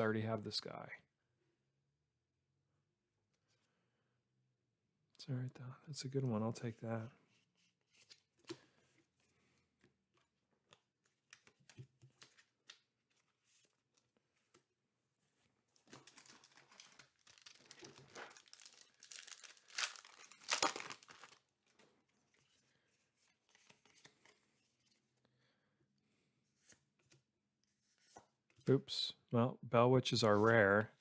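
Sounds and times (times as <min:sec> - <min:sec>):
wrapper crinkling and tearing: 0:15.8 - 0:21.5.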